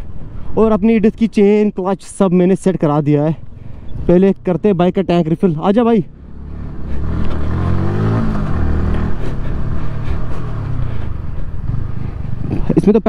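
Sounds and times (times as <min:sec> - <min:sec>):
motorcycle engine revving: 0:06.1 - 0:12.8
wind rush on microphone: 0:07.0 - 0:12.6.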